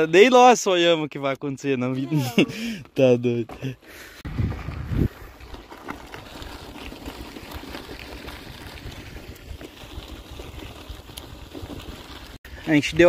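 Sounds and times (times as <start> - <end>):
wind buffeting microphone: 4.2 - 5.6.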